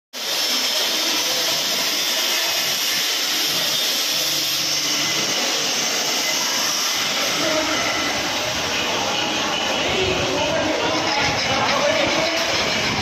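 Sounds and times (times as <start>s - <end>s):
files and hacksaws rasping metal: 0.2s - 8.2s.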